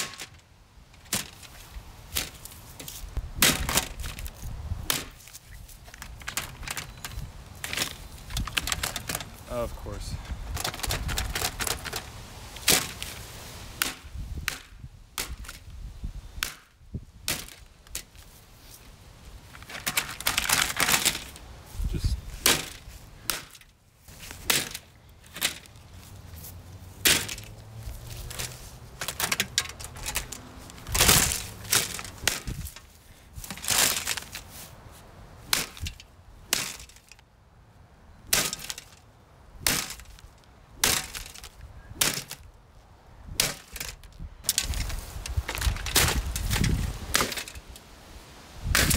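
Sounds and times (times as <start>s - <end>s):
plastic fan cracking and breaking: 0.0s - 0.4s, 1.0s - 9.4s, 10.5s - 13.2s, 13.8s - 15.7s, 16.4s - 18.2s, 19.5s - 21.4s, 22.4s - 25.8s, 27.0s - 27.6s, 28.3s - 34.5s, 35.5s - 37.2s, 38.3s - 39.0s, 39.6s - 42.5s, 43.4s - 47.8s, 48.6s - 48.9s.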